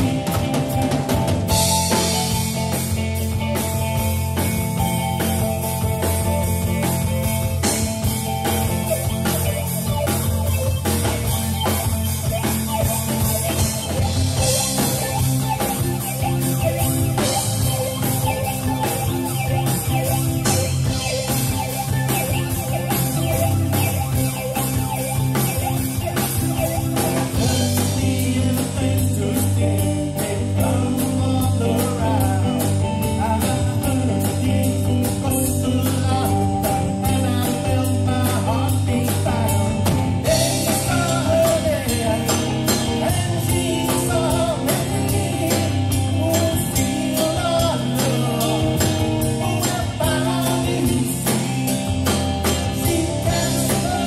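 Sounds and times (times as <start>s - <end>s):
bass guitar: 0.0s - 54.0s
distorted electric guitar: 0.0s - 54.0s
drum kit with cymbals: 0.0s - 54.0s
person singing: 27.0s - 51.8s, 52.4s - 54.0s.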